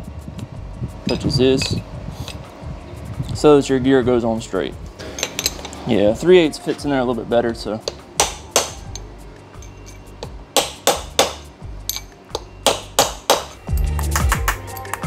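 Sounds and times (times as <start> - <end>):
background music: 0.0 - 15.0
hammer tapping on metal: 7.8 - 15.0.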